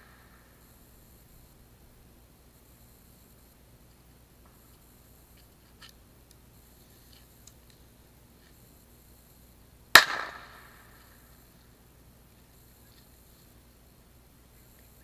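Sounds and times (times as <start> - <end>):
distant firework cracks: 9.9 - 11.0
loud firework bang: 10.0 - 10.7.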